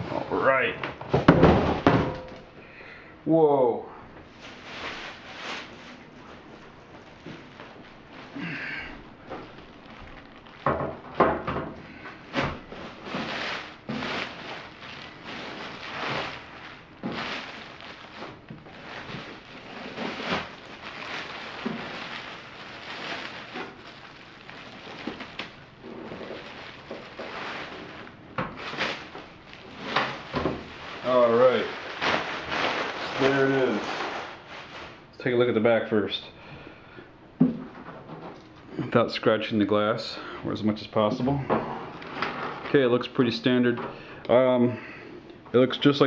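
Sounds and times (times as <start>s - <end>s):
plastic wrapping rustling: 4.3s - 35.2s.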